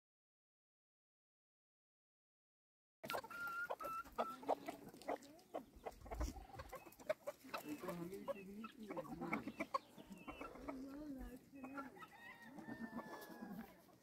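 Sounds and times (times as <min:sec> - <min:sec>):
chickens clucking: 0:03.0 - 0:14.0.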